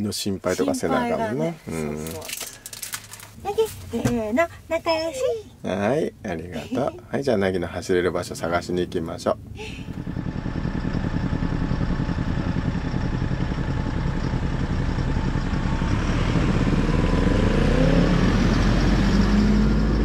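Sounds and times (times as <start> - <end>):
van engine driving past: 7.8 - 20.0.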